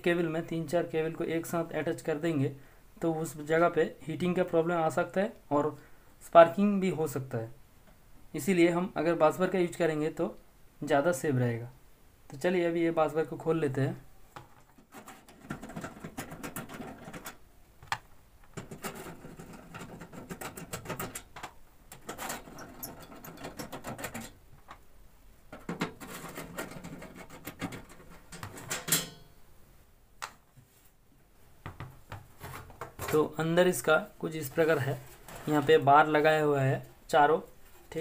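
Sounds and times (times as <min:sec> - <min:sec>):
screwdriver squeaky clicks and scraping: 0:21.9 - 0:24.4
metal cover clack: 0:25.5 - 0:29.4.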